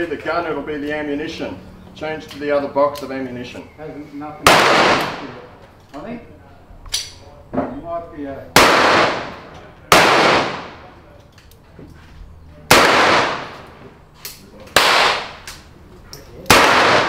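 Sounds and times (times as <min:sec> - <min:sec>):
revolver shots with echo: 0:04.5 - 0:05.5, 0:08.6 - 0:11.0, 0:12.7 - 0:13.7, 0:16.4 - 0:17.0.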